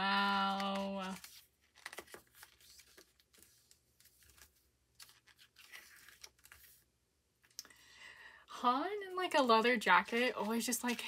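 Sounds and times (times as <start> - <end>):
paper rustling: 0.1 - 6.9, 9.9 - 11.0.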